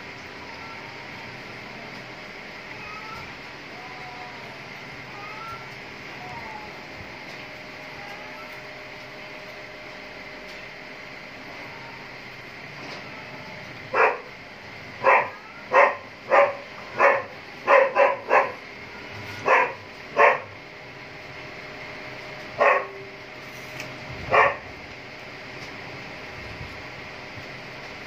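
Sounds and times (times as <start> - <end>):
faint background hum: 0.0 - 28.0
dog barking: 13.9 - 14.3, 15.0 - 18.6, 19.4 - 20.5, 22.6 - 23.0, 24.3 - 24.6.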